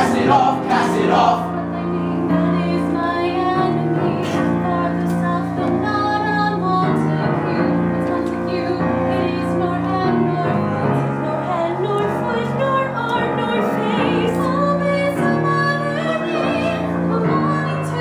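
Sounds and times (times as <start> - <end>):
group of voices singing: 0.0 - 5.8.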